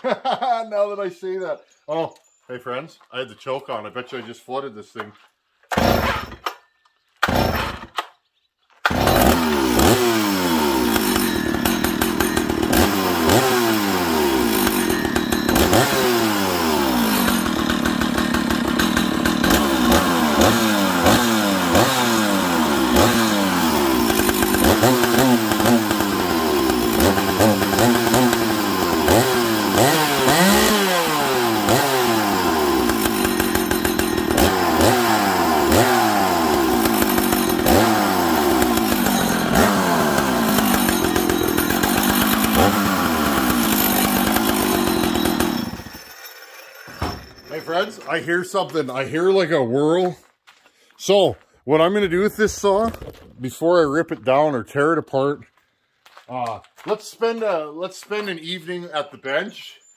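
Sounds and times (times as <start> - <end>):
chainsaw revving: 5.7 - 6.5, 7.2 - 8.1, 8.8 - 48.3.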